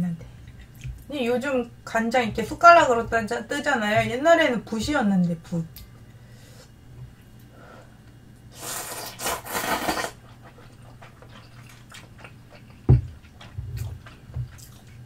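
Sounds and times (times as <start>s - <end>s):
noodles being slurped: 8.6s - 12.7s
chewing: 9.6s - 15.0s.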